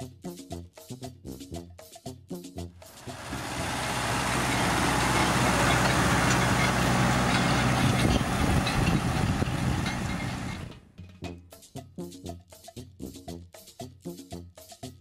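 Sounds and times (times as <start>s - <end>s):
small rattles: 2.8s - 10.9s
tractor diesel engine under load: 2.8s - 10.9s.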